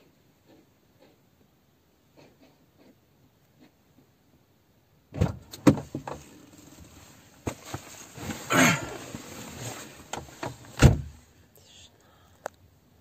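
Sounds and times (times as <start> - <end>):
knocks and thumps inside car: 5.1 - 6.3, 10.0 - 11.2
rustling scrape: 5.8 - 11.2.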